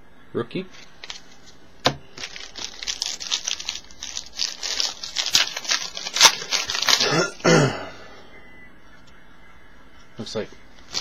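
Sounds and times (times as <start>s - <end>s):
foil wrapper crinkling and tearing: 2.2s - 7.4s, 10.8s - 11.0s.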